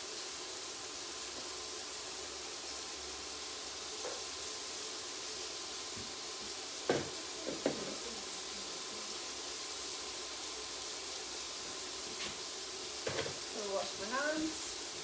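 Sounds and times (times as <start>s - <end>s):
food sizzling in frying pans: 0.0s - 15.0s
kitchen utensils knocking: 13.0s - 13.4s.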